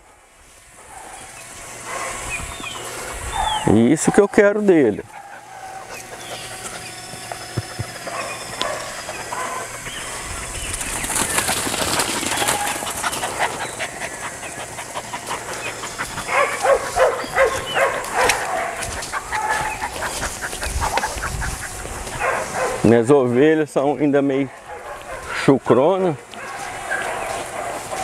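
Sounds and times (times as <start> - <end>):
birds chirping: 0.0 - 28.0
dog barking: 0.8 - 2.3, 3.3 - 4.3, 5.1 - 6.4, 8.0 - 9.9, 12.3 - 13.4, 16.1 - 20.2, 22.1 - 22.9, 24.4 - 25.5, 26.3 - 28.0.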